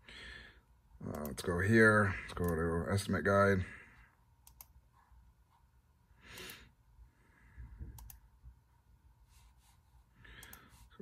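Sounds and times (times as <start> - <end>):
faint clicks: 4.4 - 4.8, 7.9 - 8.2, 10.4 - 10.7
soft breath: 6.1 - 8.0, 9.2 - 11.0.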